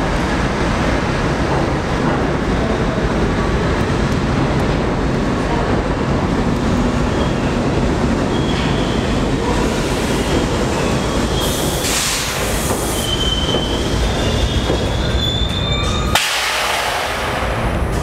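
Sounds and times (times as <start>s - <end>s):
train wheels rumbling on rails: 0.0s - 18.0s
wheel squeals: 8.3s - 9.3s, 12.5s - 16.2s.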